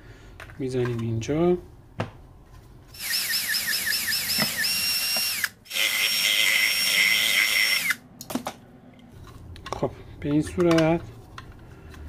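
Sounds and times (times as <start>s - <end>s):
electric drill whining: 3.0s - 8.0s.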